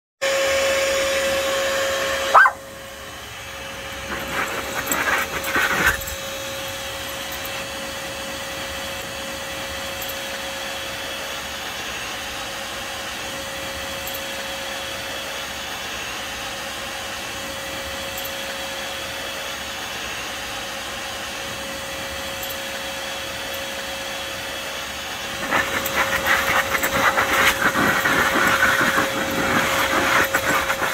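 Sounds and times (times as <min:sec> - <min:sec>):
shop vac motor whining: 0:00.2 - 0:30.9
dog barking and snapping: 0:02.3 - 0:02.6, 0:04.1 - 0:06.1.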